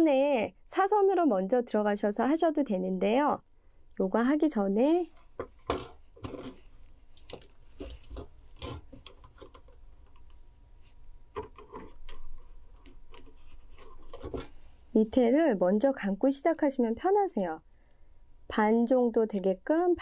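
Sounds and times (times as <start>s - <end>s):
wire clicking and rubbing: 5.1s - 10.4s, 11.3s - 14.8s.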